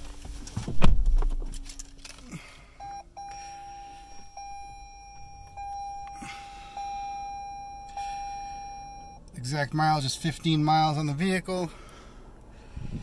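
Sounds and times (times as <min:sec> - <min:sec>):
heavy thump: 0:00.6 - 0:01.5
car warning chime: 0:02.8 - 0:11.1.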